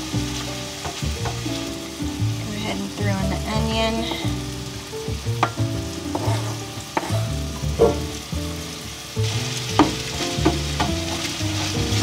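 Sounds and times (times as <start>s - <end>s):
meat sizzling in a frying pan: 0.0s - 12.0s
spatula scraping a pan: 5.4s - 7.2s.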